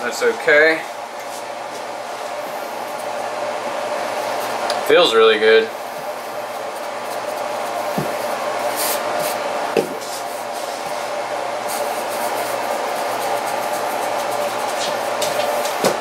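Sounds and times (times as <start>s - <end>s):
fan whirring: 0.0s - 16.0s
hands rustling on floured dough: 5.8s - 16.0s
dough thumping on counter: 15.2s - 16.0s.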